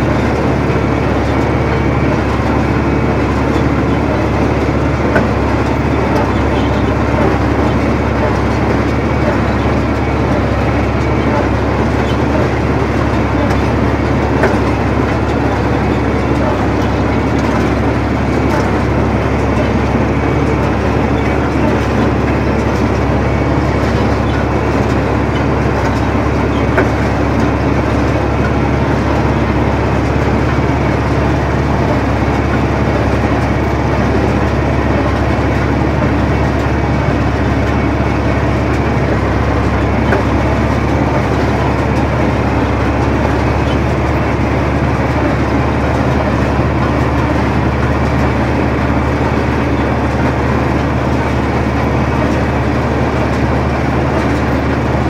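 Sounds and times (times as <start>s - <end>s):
baler machinery: 0.0s - 55.0s
tractor engine running: 0.0s - 55.0s.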